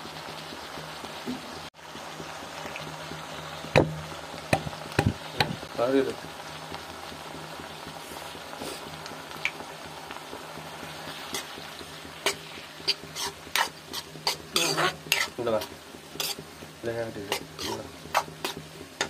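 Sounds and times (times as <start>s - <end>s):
onions sizzling in a pan: 0.0s - 19.0s
spoon clicking and scraping pan: 12.2s - 16.4s, 17.3s - 19.0s.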